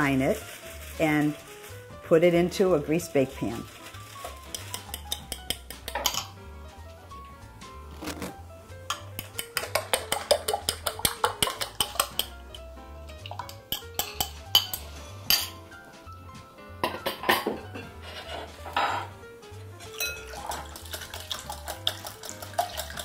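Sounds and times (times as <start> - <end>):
background music: 0.0 - 23.0
bowls and utensils clinking: 4.2 - 6.4, 8.9 - 12.6, 13.2 - 15.6, 16.8 - 19.2, 19.8 - 23.0
whisk beating eggs in glass bowl: 9.2 - 12.3, 20.0 - 23.0.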